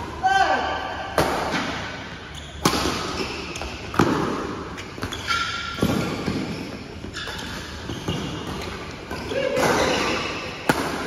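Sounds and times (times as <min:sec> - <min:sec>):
rackets hitting shuttlecock: 0:01.1 - 0:11.0
shoe squeaks: 0:02.2 - 0:03.8, 0:04.7 - 0:10.6.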